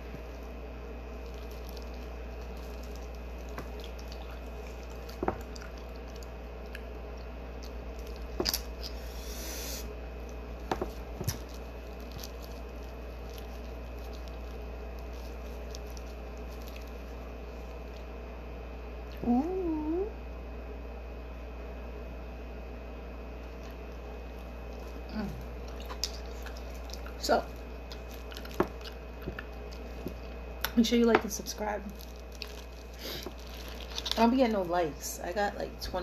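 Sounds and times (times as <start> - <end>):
wet squishing and crinkling: 0.0 - 18.2, 23.4 - 36.0
steady low hum: 0.0 - 36.0
plastic rustle: 10.6 - 18.0, 31.3 - 34.8.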